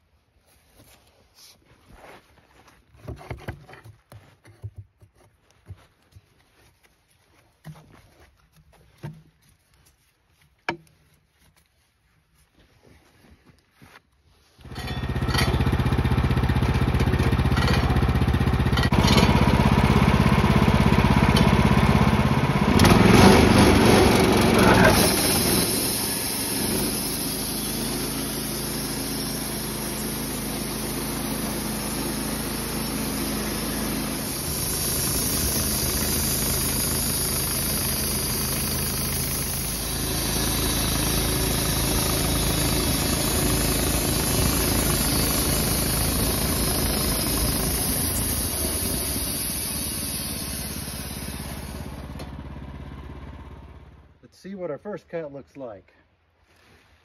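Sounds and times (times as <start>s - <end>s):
sawmill engine running: 14.6s - 54.2s
band blade sawing log: 22.8s - 52.3s.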